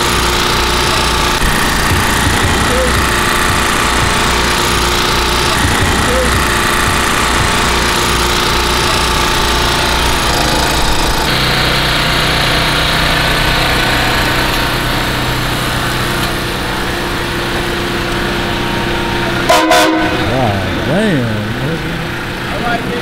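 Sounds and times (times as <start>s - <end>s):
loud clatter: 0.0s - 13.6s
engine idling: 0.0s - 23.0s.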